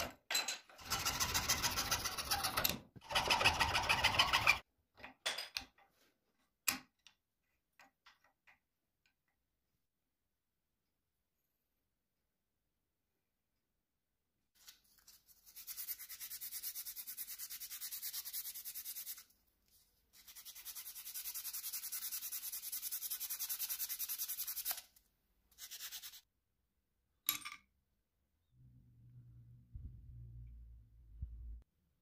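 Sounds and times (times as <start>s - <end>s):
sandpaper rubbing on wood: 15.4s - 19.3s, 20.2s - 24.8s, 25.5s - 26.2s.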